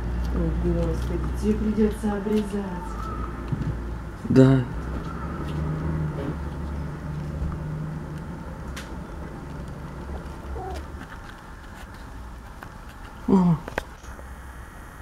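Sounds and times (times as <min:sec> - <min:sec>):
mourning dove cooing: 0:10.4 - 0:11.0.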